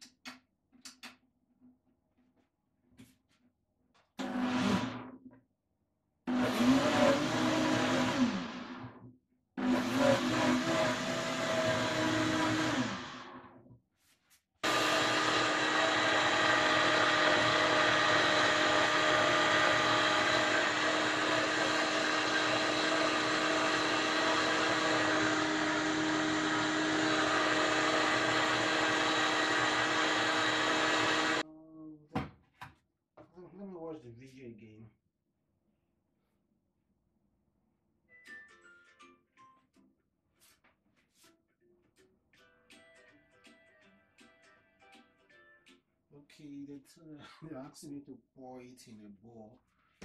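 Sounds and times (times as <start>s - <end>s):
blender motor running: 4.2s - 5.2s, 6.3s - 9.0s, 9.6s - 13.6s, 14.6s - 31.4s.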